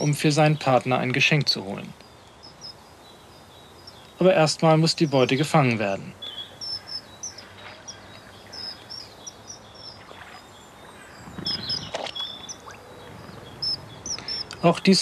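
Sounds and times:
high bird chirps: 0:02.0 - 0:04.3, 0:06.2 - 0:15.0
bird splashing into water: 0:09.7 - 0:13.6.

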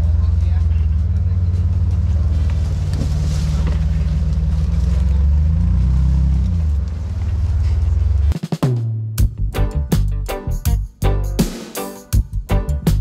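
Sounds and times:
engine rumbling at low revs: 0:00.0 - 0:08.4.

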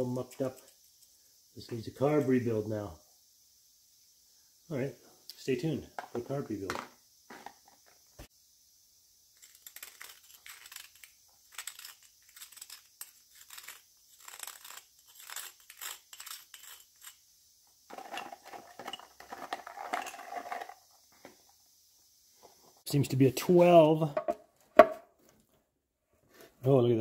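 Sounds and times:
metal parts clicking and clinking: 0:09.4 - 0:17.2, 0:17.9 - 0:20.8.

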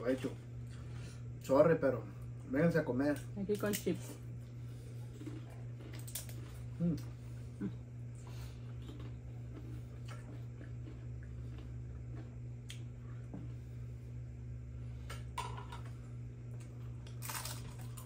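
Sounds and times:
low hum: 0:00.0 - 0:18.0
crunchy chewing: 0:03.5 - 0:13.7, 0:16.5 - 0:18.0.

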